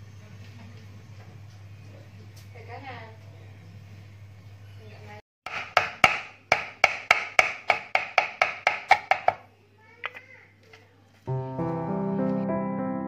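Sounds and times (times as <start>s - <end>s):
lemongrass stems being pounded: 5.5s - 9.4s
background music: 11.3s - 13.0s.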